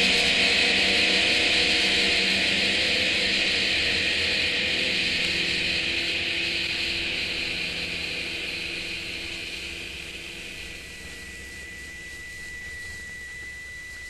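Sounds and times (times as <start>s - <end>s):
hissy guitar wash: 0.1s - 14.0s
thin steady high tone: 4.6s - 14.0s.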